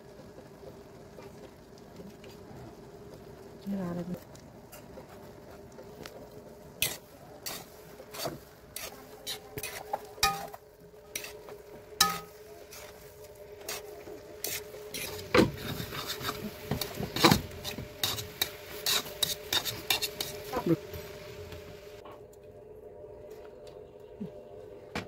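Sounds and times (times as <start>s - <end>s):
metal spatula scraping wok: 6.8s - 21.3s.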